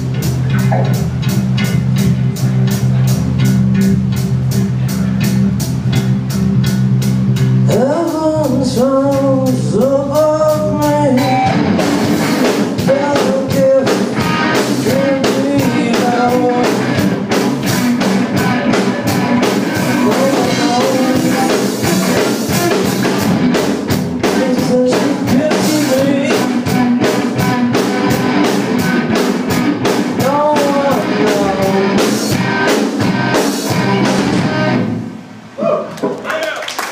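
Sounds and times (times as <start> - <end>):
live rock band: 0.0 - 35.6
man singing: 7.6 - 11.6, 12.6 - 17.0, 18.1 - 22.4, 24.2 - 28.2, 30.2 - 32.4.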